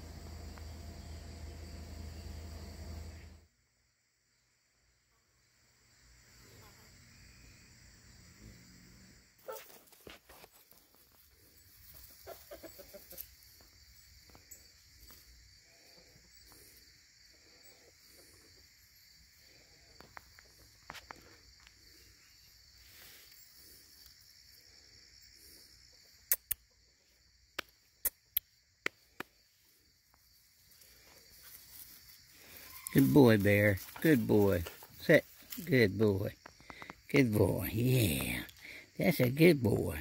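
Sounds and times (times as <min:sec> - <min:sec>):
insects droning: 0:00.0 - 0:40.0
chickens clucking: 0:11.9 - 0:13.3
sharp clicks: 0:26.3 - 0:26.6.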